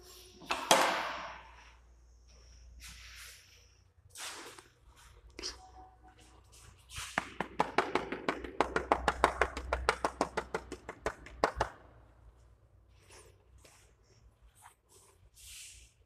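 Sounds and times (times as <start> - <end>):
rapid sharp taps: 7.2 - 11.8.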